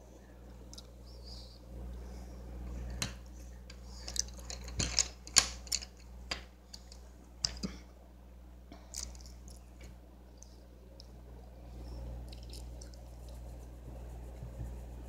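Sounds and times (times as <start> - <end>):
steady low hum: 0.0 - 15.0
wooden pencils clicking together: 3.0 - 7.7.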